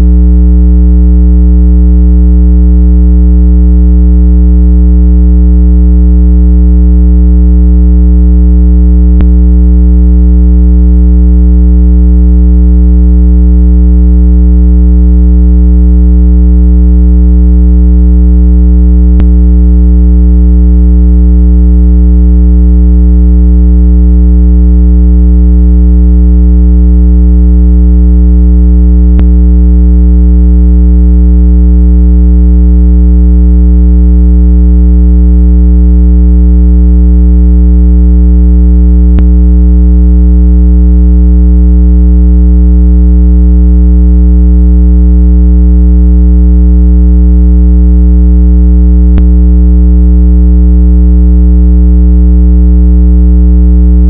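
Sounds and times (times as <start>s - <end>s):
loud low-pitched tone: 9.1s - 9.6s, 19.1s - 19.4s, 29.1s - 29.4s, 39.1s - 39.3s.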